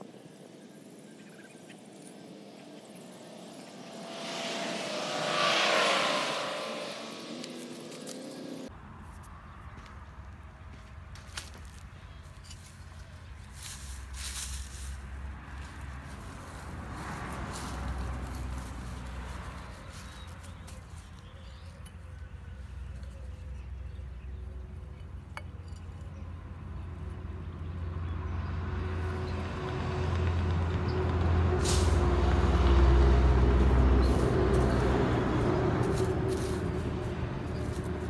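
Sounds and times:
heavy vehicle passing: 3.4 - 8.7, 14.1 - 21.5, 26.6 - 38.0
trowel scraping soil: 33.6 - 38.0.

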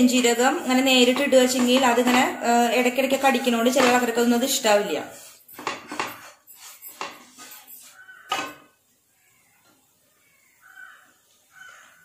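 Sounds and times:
wooden spatula scraping a pan: 0.0 - 8.7.

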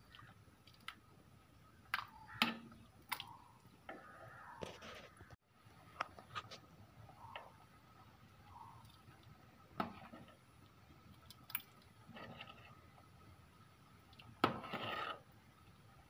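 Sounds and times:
porridge sloshing: 6.2 - 13.2, 14.0 - 15.3.

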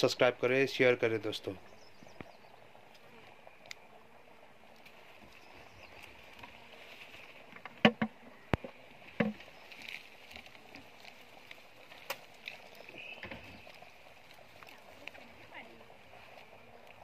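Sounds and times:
wooden box knocks and clunks: 7.6 - 9.4.

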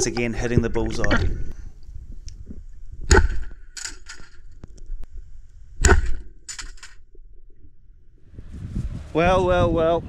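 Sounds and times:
speargun firing crack: 3.1 - 4.0, 5.8 - 6.8.

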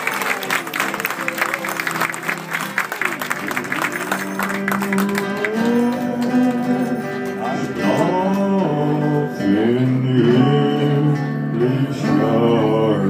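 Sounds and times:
applause: 0.0 - 9.1
music with held notes: 0.0 - 13.0.

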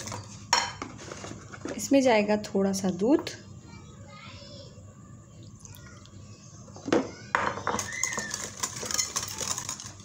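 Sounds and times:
wire whisk clinking and scraping plate: 7.8 - 10.0.

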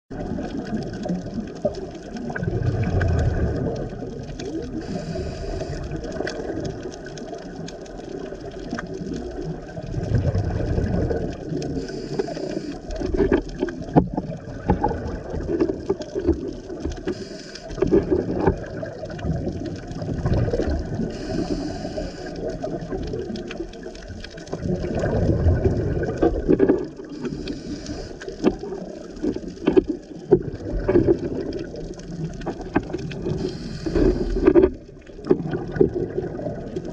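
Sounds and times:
exhaled bubbles rumbling: 0.1 - 36.9
inhaled air hissing: 4.8 - 5.9, 11.7 - 12.9, 17.1 - 17.8, 21.0 - 22.6, 27.1 - 28.3, 33.4 - 34.4.

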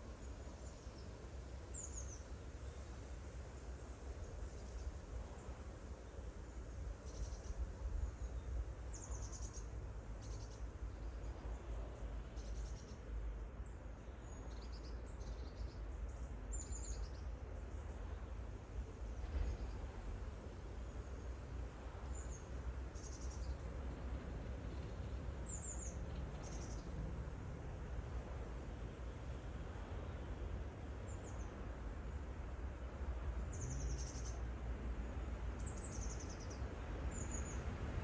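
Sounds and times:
low background rumble: 6.4 - 38.0
small birds chirping: 24.6 - 27.0, 31.0 - 37.7.

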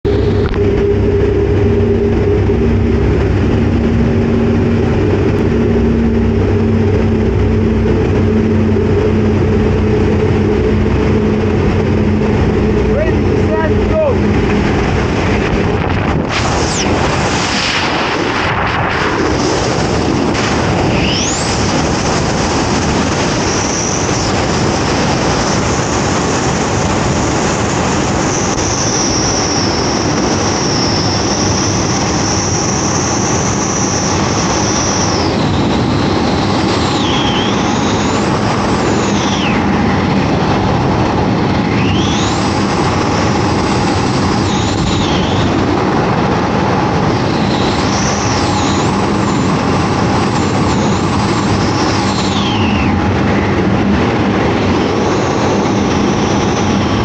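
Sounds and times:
wind buffeting microphone: 0.0 - 57.0
high whistle: 36.8 - 38.2.

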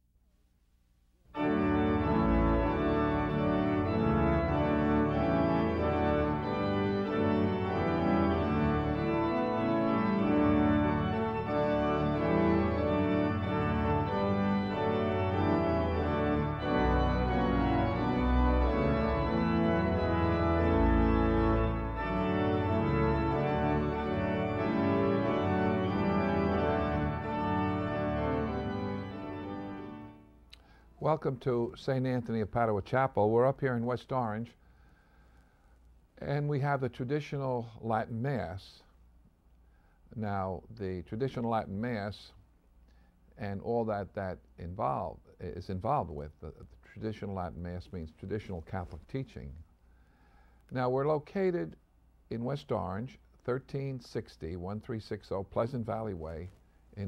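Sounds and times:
organ playing sustained chords: 1.3 - 34.4, 52.3 - 56.5.

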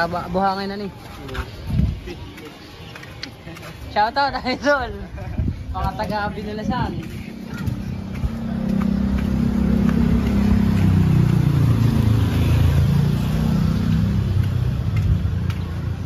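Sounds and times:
vehicle engine revving: 7.8 - 15.6.

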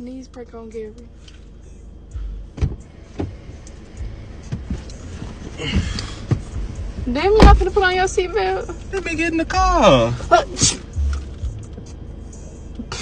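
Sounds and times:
car door knocks and thumps: 2.4 - 3.6, 4.4 - 7.9.

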